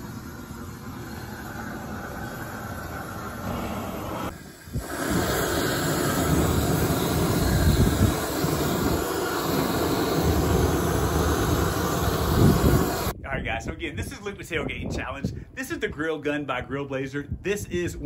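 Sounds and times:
propane torch flame rushing: 0.0 - 13.2.

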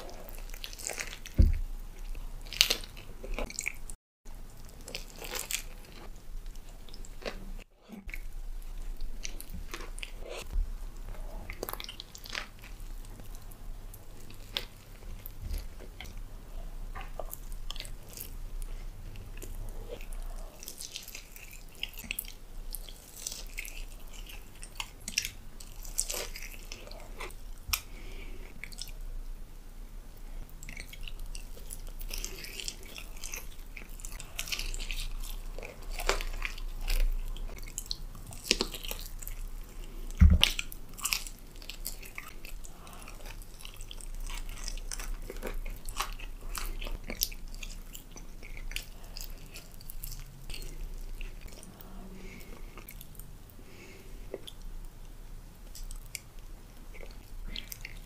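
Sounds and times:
wet smacking chewing: 16.9 - 29.0, 30.4 - 54.9
biting and crunching sandwich: 30.6 - 53.2.

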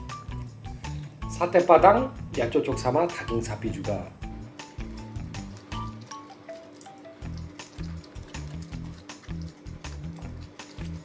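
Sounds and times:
deep bass notes: 3.7 - 6.0.

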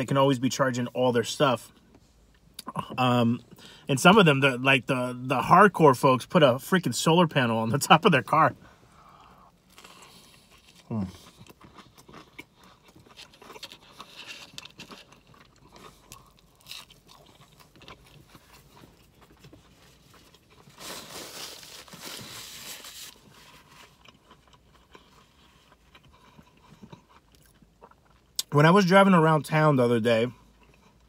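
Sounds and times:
close-up chewing: 9.6 - 28.5.

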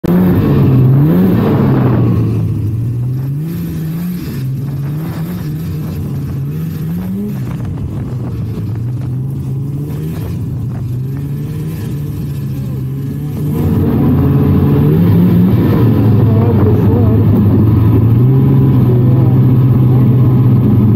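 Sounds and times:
snowmobile engine revving: 0.0 - 20.9.

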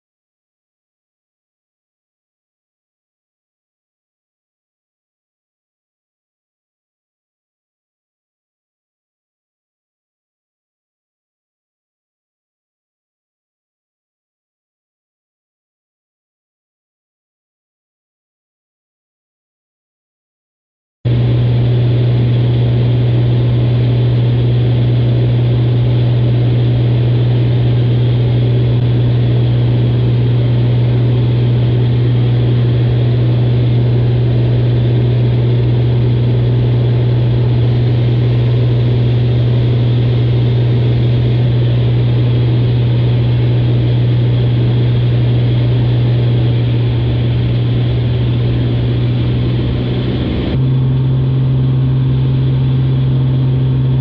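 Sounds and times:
light airplane engine drone: 21.1 - 54.0.

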